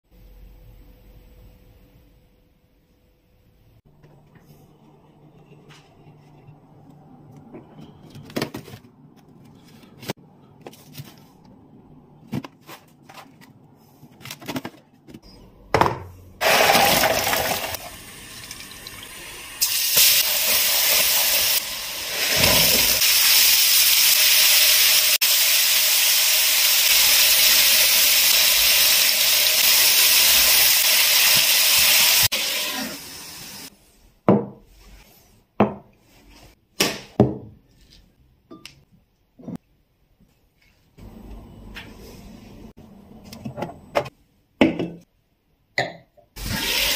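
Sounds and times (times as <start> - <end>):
liquid sizzling in frying pan: 16.4 - 33.7.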